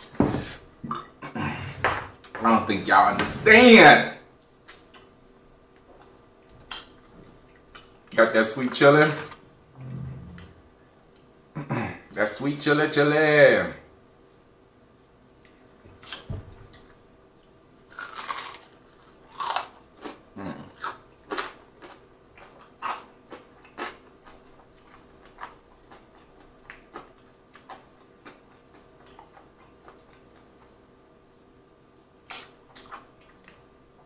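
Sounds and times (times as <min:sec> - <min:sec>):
crunchy chicken chewing: 0:17.9 - 0:30.8.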